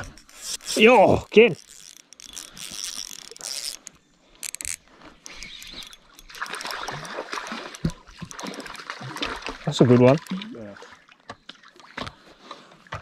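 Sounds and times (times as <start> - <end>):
water splashing: 0.0 - 3.9, 5.3 - 13.0
stream running: 0.0 - 13.0.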